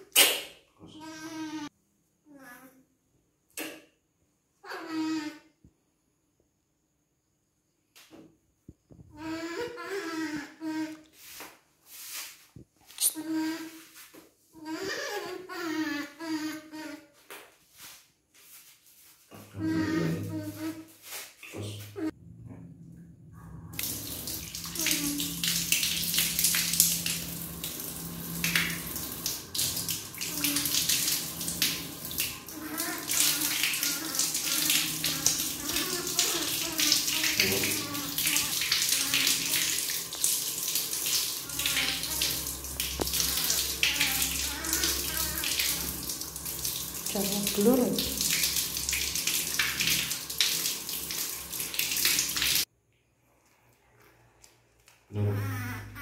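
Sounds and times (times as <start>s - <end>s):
water running from tap: 19.6s - 21.2s, 23.7s - 52.7s
brief pitched vocal sound: 55.1s - 56.0s.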